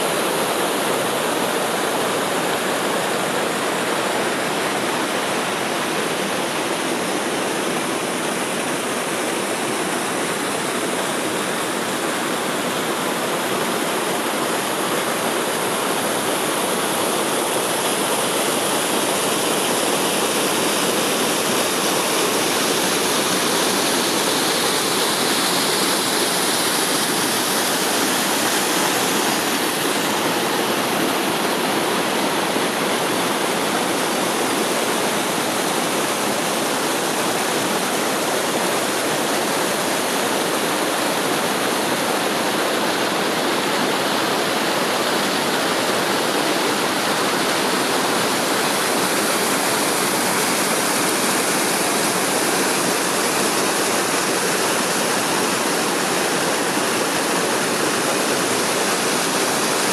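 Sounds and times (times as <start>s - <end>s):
waterfall pouring into pool: 0.0s - 59.9s.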